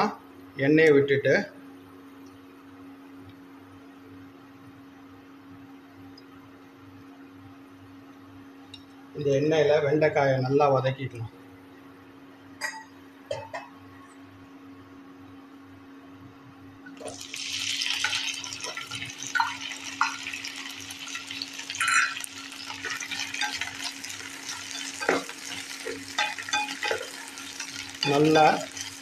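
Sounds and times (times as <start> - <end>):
okra sizzling in hot oil: 17.0 - 29.0
spatula knocking pan: 21.8 - 29.0.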